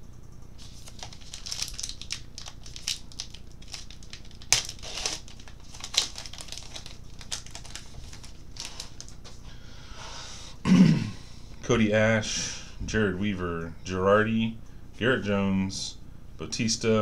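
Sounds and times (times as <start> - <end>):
wrapper crinkling and tearing: 0.6 - 9.2.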